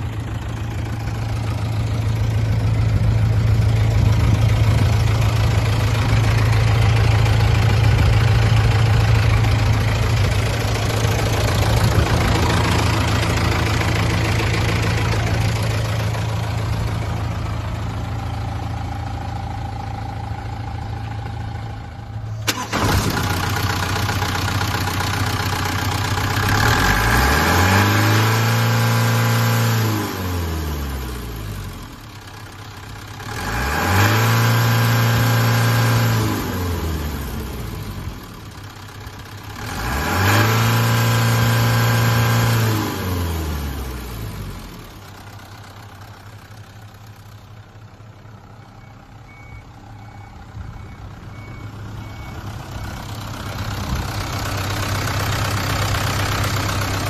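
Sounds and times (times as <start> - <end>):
diesel engine revving and idling: 0.0 - 57.0.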